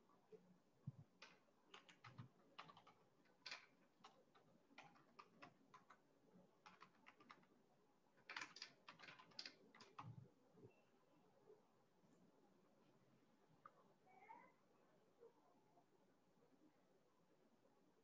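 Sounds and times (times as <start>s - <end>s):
faint keyboard typing: 0.8s - 10.8s.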